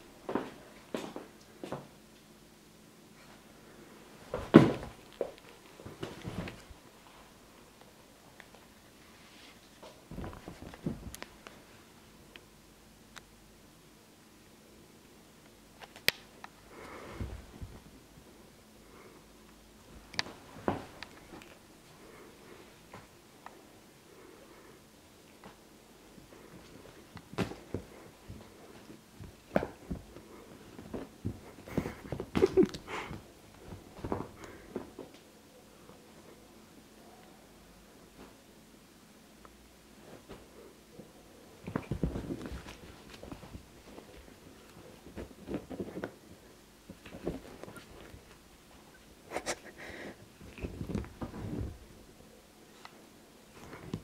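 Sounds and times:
cat scuffling on sofa: 4.2 - 7.3, 9.2 - 11.7, 16.9 - 18.2, 26.4 - 35.2, 41.6 - 52.0.

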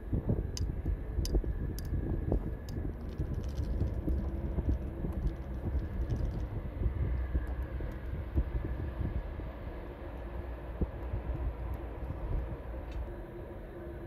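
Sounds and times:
jet engines idling: 0.0 - 14.0.

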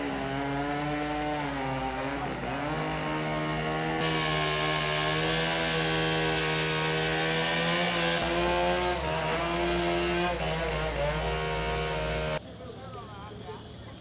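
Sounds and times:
chainsaw cutting wood: 0.0 - 12.4.

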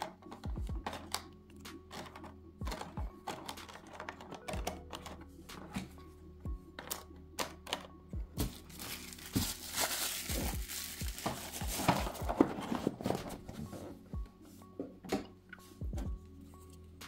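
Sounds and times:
plastic packaging crinkling: 8.4 - 12.9.

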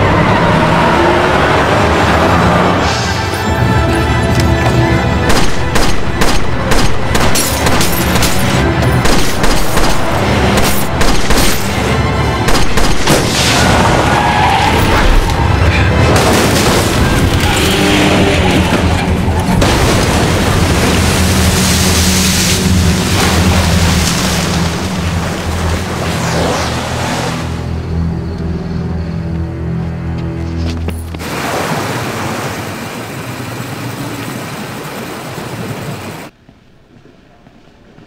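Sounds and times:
dramatic music with low drone: 0.0 - 31.3
splash into water: 19.6 - 26.8, 31.2 - 32.9.

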